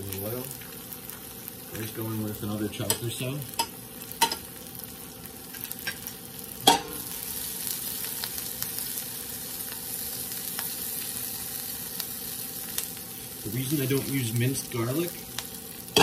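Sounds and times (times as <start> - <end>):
vegetables sizzling in a pan: 0.0 - 16.0
sharp metal clank: 6.7 - 7.0.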